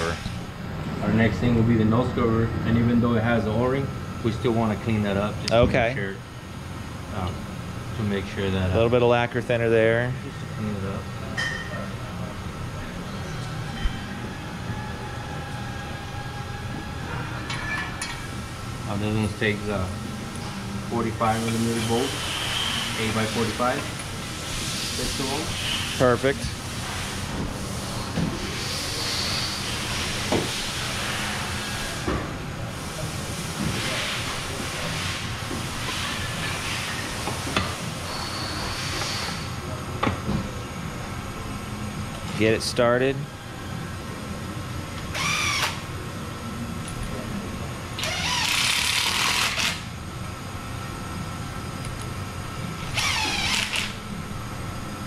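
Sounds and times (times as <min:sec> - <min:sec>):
steady hissing shop noise: 0:00.0 - 0:55.0
power driver whining: 0:45.0 - 0:45.9, 0:48.0 - 0:50.0, 0:52.7 - 0:54.4.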